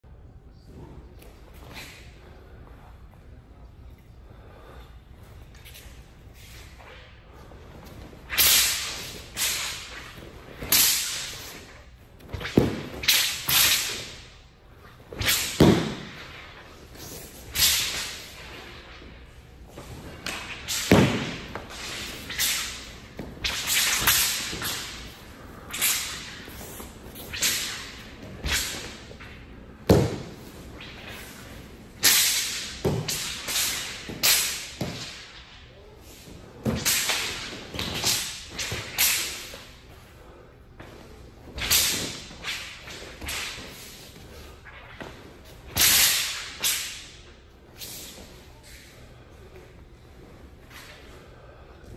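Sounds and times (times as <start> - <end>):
sword swishing through air: 5.8 - 35.5, 40.8 - 49.0.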